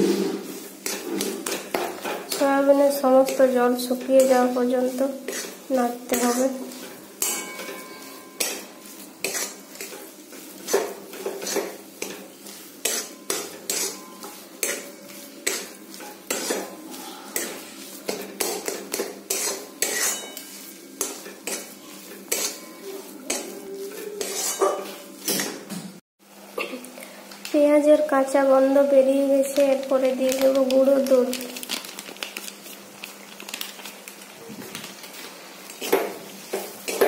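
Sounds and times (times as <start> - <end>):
metal spatula scraping a pan: 0.0 - 25.6
paste frying: 0.0 - 25.7, 26.4 - 37.0.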